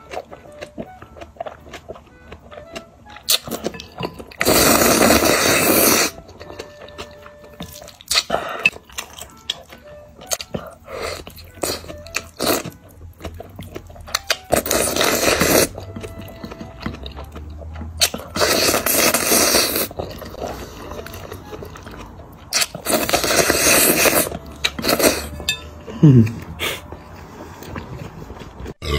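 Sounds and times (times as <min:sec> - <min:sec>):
chewing: 0:00.0 - 0:28.9
person slurping noodles: 0:04.4 - 0:06.2, 0:14.5 - 0:15.8, 0:18.4 - 0:21.0, 0:22.8 - 0:25.4.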